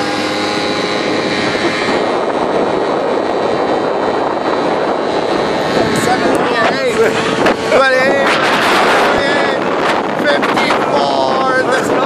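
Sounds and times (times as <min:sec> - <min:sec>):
scooter engine drone: 0:00.0 - 0:12.0
wind rushing on microphone: 0:00.0 - 0:12.0.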